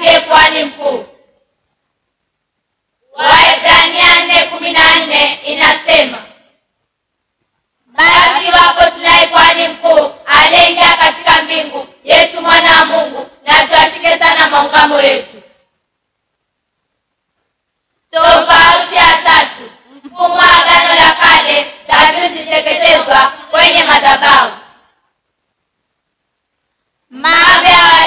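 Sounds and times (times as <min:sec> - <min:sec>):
children singing together: 0:00.0 - 0:01.2, 0:03.1 - 0:06.4, 0:07.9 - 0:15.4, 0:18.1 - 0:24.9, 0:27.1 - 0:28.0.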